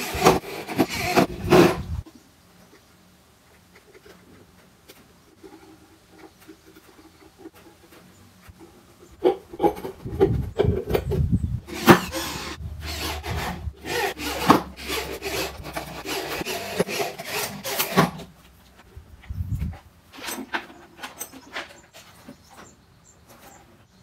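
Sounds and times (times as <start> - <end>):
hand tool scraping wood: 0.0 - 2.0, 5.4 - 18.4.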